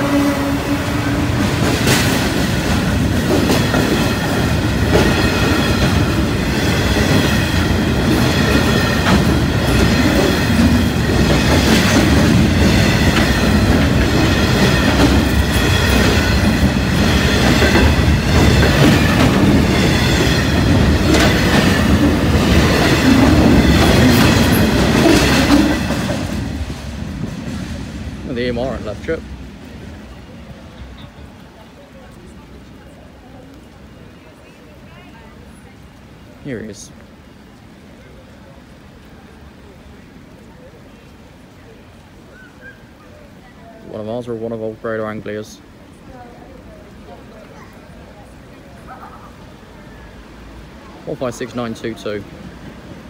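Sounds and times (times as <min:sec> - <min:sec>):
freight train rumbling past: 0:00.0 - 0:53.0
wheels clicking over rail joints: 0:01.2 - 0:27.8.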